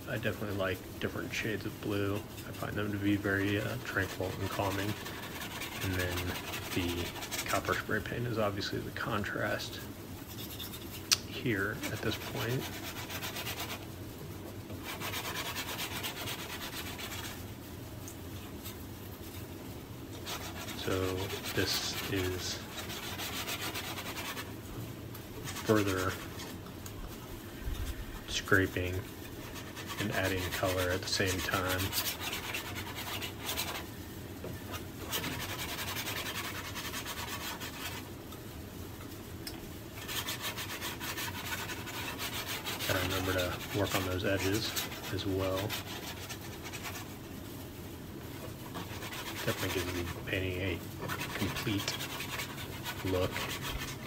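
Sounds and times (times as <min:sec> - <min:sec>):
palette knife scraping canvas: 0:01.4 - 0:08.2, 0:11.7 - 0:13.9, 0:14.8 - 0:17.4, 0:20.2 - 0:24.6, 0:25.5 - 0:26.6, 0:27.7 - 0:34.0, 0:34.7 - 0:38.1, 0:40.0 - 0:47.2, 0:48.3 - 0:54.0.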